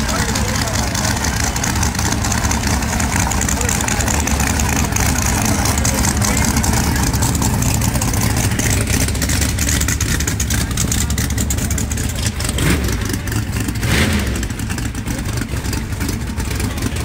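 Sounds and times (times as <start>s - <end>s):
race car engine running loud: 0.0s - 17.0s.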